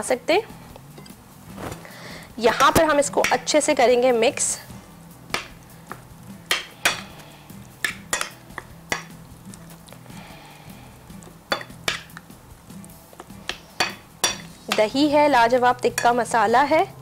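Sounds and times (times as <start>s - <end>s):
soft stirring: 7.0s - 15.0s
utensil clinking against bowl: 7.8s - 9.2s, 11.5s - 12.2s, 13.1s - 15.0s.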